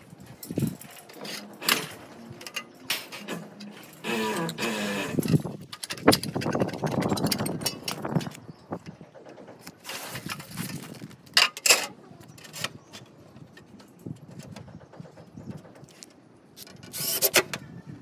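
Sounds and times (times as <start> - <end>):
metal parts and tools knocking: 0.3 - 13.0
rough scraping: 0.4 - 7.6, 9.7 - 11.9.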